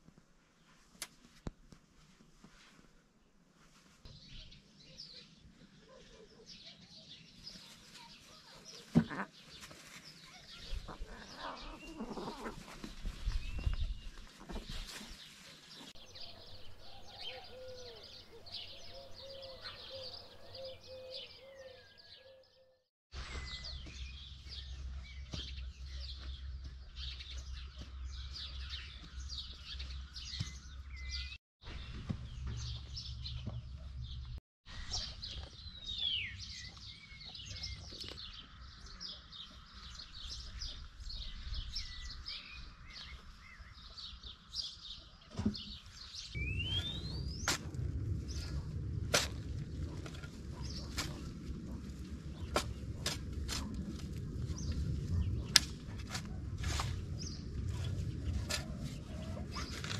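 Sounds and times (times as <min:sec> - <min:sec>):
birds chirping and singing: 0:04.1 - 0:59.9
steady low rumble: 0:46.4 - 0:59.9.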